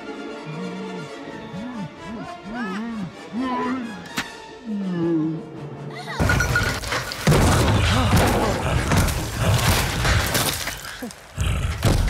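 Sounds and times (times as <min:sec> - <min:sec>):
crashes and thuds: 0:06.3 - 0:10.8.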